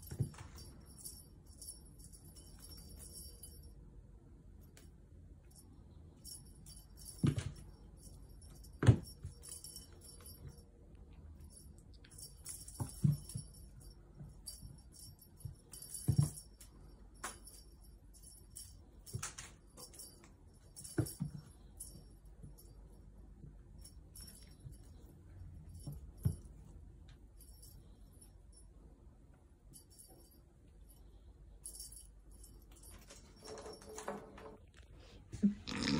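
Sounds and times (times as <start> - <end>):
cat toy bell jingling: 0.0 - 3.8, 5.4 - 28.6.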